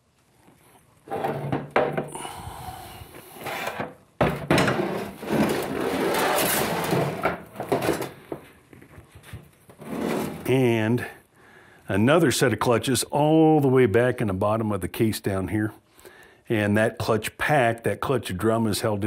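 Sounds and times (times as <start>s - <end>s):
steel parts clunking and scraping: 1.1s - 2.1s, 3.4s - 8.5s.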